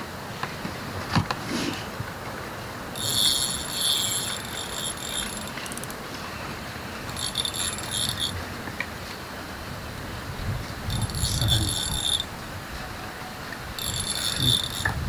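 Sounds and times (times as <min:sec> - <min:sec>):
fishing reel gears whirring: 0:02.9 - 0:06.0, 0:07.0 - 0:08.4, 0:10.8 - 0:12.4, 0:13.7 - 0:15.0.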